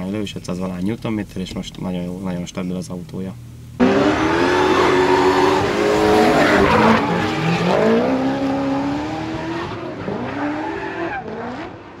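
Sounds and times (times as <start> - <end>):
tyres screeching: 3.8 - 8.3
car engines revving: 3.8 - 12.0.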